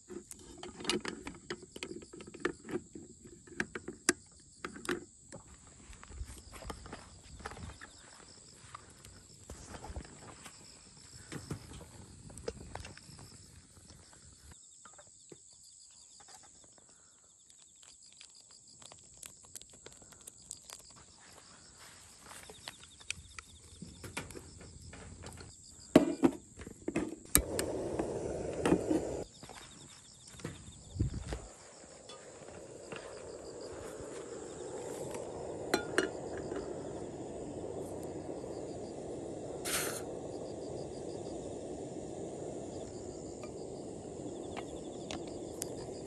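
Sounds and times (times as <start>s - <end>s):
crickets chirping: 0.0s - 46.0s
camp cookware clicking and knocking: 0.5s - 5.1s, 33.9s - 38.4s.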